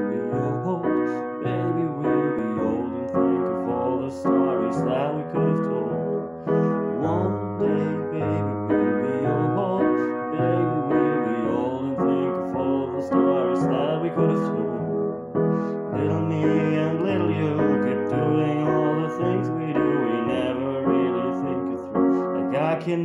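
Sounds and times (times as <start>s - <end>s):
piano playing slow chords: 0.0s - 23.0s.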